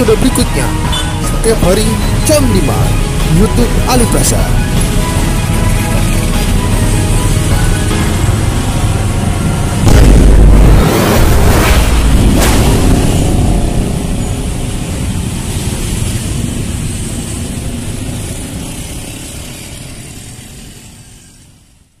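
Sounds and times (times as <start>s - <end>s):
long noisy rush: 0.0s - 22.0s
sharp hits: 9.8s - 15.2s.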